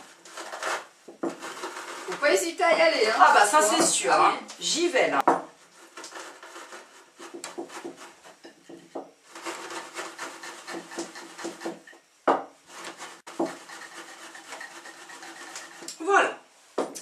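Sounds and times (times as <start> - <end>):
rusks crunching under rolling pin: 0.0 - 2.5.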